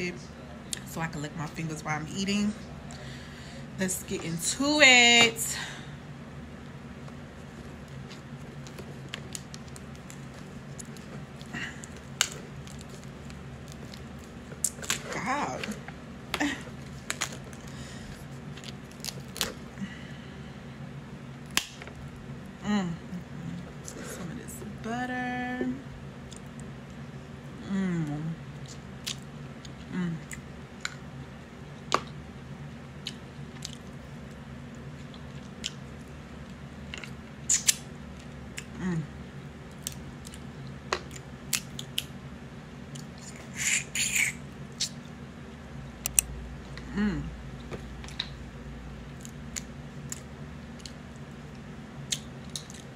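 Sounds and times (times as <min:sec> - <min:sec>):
crab shells cracking: 0:07.9 - 0:15.1, 0:18.5 - 0:19.6.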